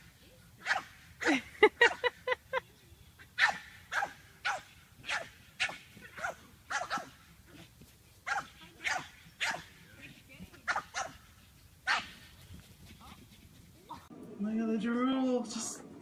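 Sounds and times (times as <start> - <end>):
small dog barking: 0.6 - 1.0, 3.4 - 9.8, 10.6 - 12.2.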